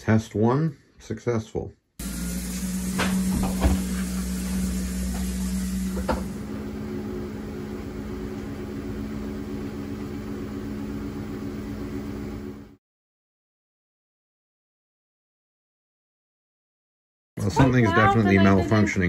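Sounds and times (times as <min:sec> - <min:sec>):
washing machine humming: 0:02.0 - 0:12.8, 0:17.4 - 0:19.0.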